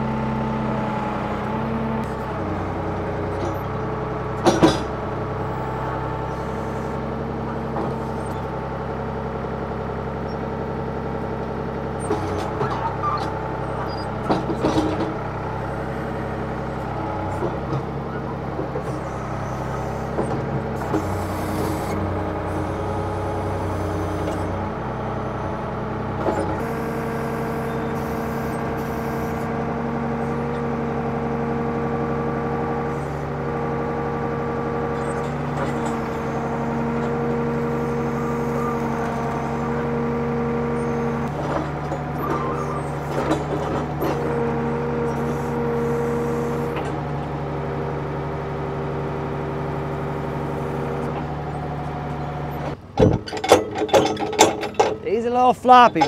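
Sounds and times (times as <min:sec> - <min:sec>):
backhoe engine running: 0:00.0 - 0:56.0
knocks and rattles: 0:04.4 - 0:05.0, 0:52.8 - 0:56.0.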